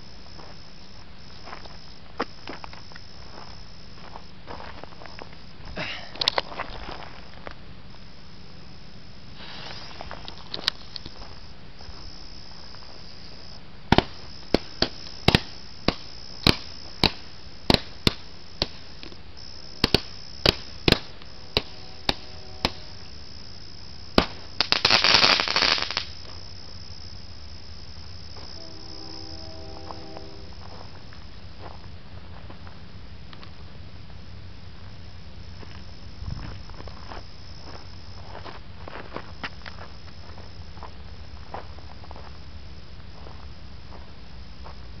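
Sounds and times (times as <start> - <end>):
crickets trilling: 0.0 - 45.0
firework bangs: 13.9 - 19.0, 19.8 - 23.1, 24.1 - 26.2
firework crackling: 13.9 - 23.2, 24.1 - 26.4.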